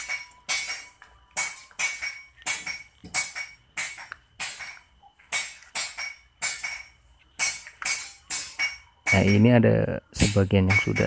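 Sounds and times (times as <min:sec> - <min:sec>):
sharp metallic clinks: 0:00.0 - 0:11.0.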